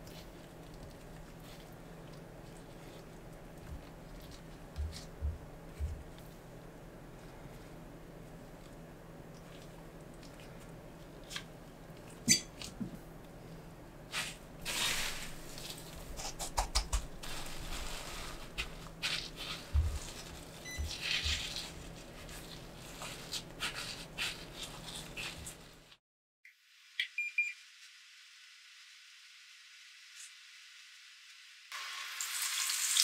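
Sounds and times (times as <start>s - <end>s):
breadcrumbs rustling and crunching: 0.0s - 6.5s, 14.1s - 26.0s
squishing in beaten egg: 0.0s - 12.7s, 14.1s - 26.0s.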